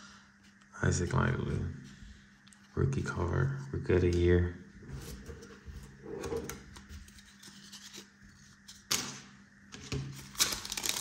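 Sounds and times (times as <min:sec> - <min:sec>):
cards sliding and shuffling: 0:06.3 - 0:08.9.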